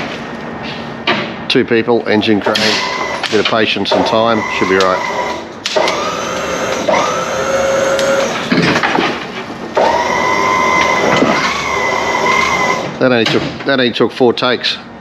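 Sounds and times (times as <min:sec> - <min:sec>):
power tool motor whining: 0:02.7 - 0:03.3, 0:03.9 - 0:08.6, 0:09.8 - 0:13.0.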